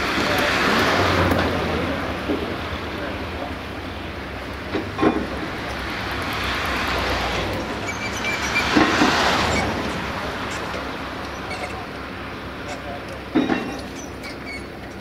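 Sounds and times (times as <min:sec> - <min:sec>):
vehicle passing by: 0:00.0 - 0:03.6, 0:05.5 - 0:11.2.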